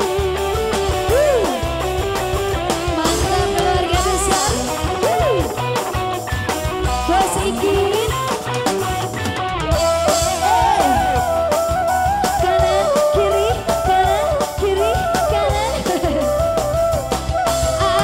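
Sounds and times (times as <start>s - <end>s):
drums: 0.0s - 18.0s
electric guitars: 0.0s - 18.0s
woman singing: 2.8s - 5.4s, 7.0s - 8.5s, 10.2s - 18.0s.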